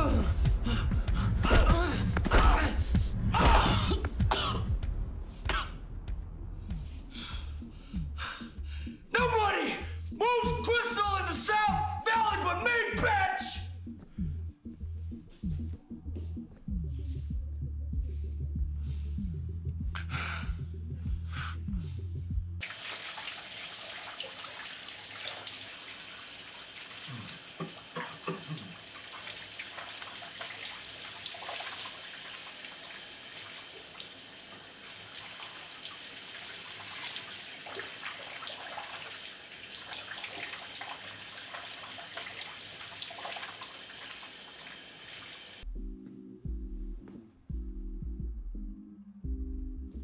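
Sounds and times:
shower water spraying into bathtub: 0:22.6 - 0:45.6.

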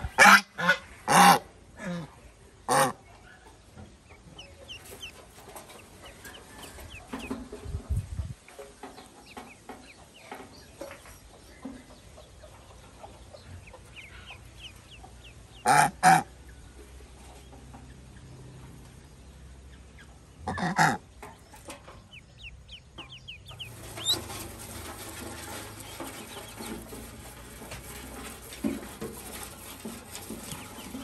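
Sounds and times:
goose honking: 0:00.0 - 0:02.0, 0:15.6 - 0:16.4, 0:20.4 - 0:21.0
chicks peeping: 0:02.7 - 0:29.4.

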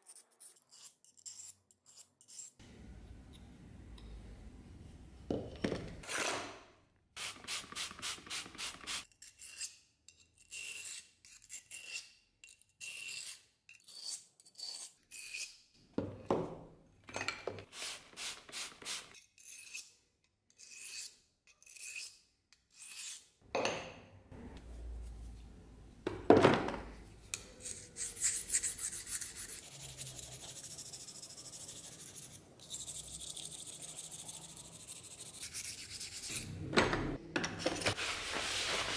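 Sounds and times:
knife scraping on sharpening stone: 0:00.0 - 0:02.6, 0:09.1 - 0:15.6, 0:19.2 - 0:23.3, 0:27.3 - 0:30.9.

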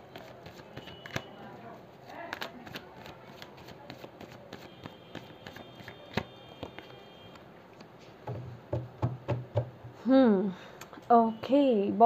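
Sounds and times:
cards being shuffled: 0:00.1 - 0:01.3, 0:02.0 - 0:08.2.

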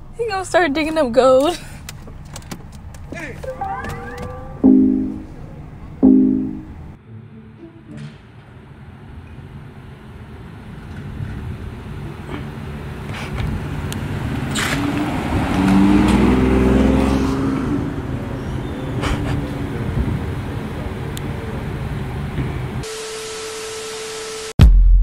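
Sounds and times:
car engine accelerating: 0:13.6 - 0:20.5.

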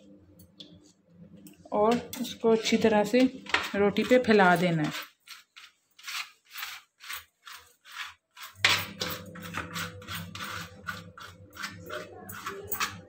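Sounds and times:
steady low hum: 0:00.0 - 0:04.8
knife scraping on bread: 0:02.2 - 0:13.0.

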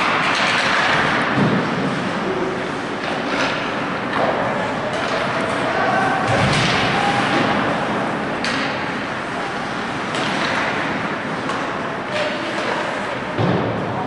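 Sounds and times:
sharp knocks of hockey sticks: 0:00.0 - 0:01.2, 0:08.4 - 0:08.9, 0:10.0 - 0:12.8
skates on ice: 0:00.0 - 0:14.0.

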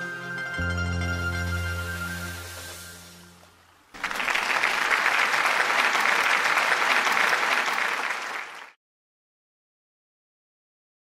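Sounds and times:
audience applauding: 0:03.9 - 0:08.8.

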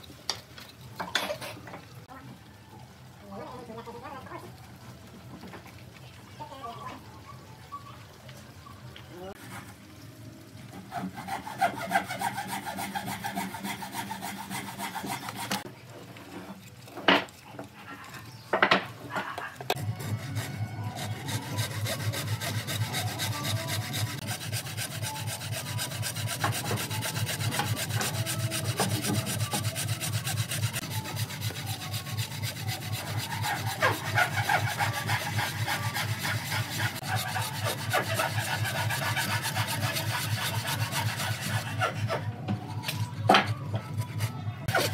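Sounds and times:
bow saw rasping through wood: 0:10.7 - 0:15.7, 0:19.8 - 0:43.0, 0:44.0 - 0:44.9.

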